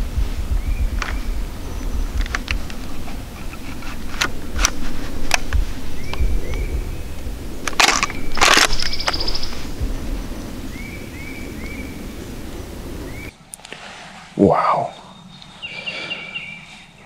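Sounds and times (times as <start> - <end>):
close rustling and crunching: 1.0 - 9.7
bird chirps: 5.9 - 7.2, 8.1 - 9.7, 10.5 - 13.3, 14.7 - 17.0
sharp clicks: 7.6 - 9.6.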